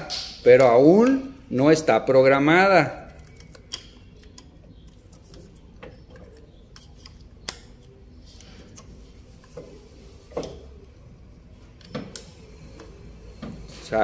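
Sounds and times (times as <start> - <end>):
plastic connectors clicking: 3.0 - 8.9.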